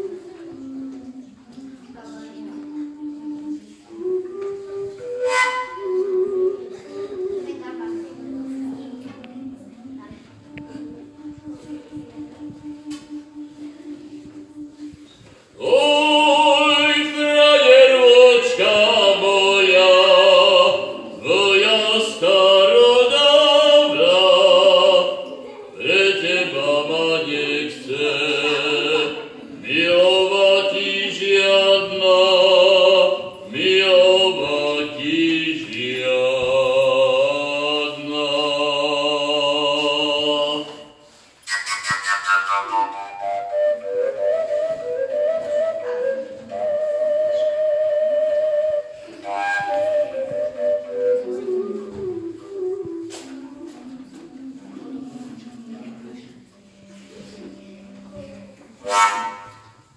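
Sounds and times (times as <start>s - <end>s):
overtone flute melody: 2.3s - 9.0s, 10.7s - 17.6s, 41.1s - 54.2s, 58.8s - 59.9s.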